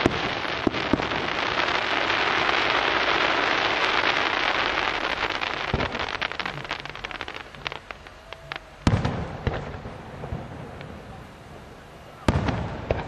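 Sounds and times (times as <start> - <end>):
firework bangs: 0.0 - 13.0
fireworks crackling: 0.0 - 13.0.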